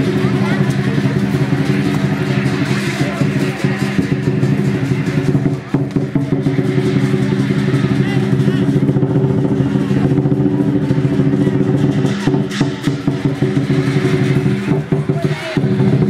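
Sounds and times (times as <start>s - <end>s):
cymbals crashing: 0.0s - 16.0s
lion dance drum: 0.0s - 16.0s.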